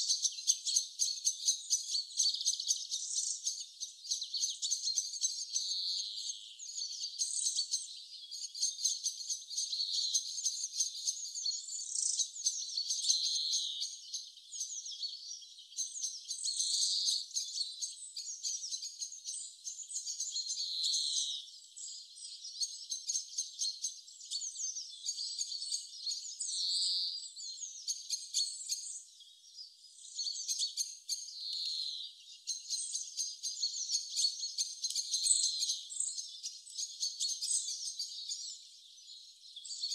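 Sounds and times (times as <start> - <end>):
birds chirping and trilling: 0.0 - 39.9.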